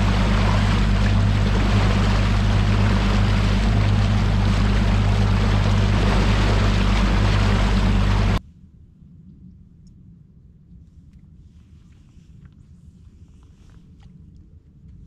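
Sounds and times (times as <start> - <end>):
outboard motor droning: 0.0 - 8.4
wind and water rushing: 0.0 - 8.4.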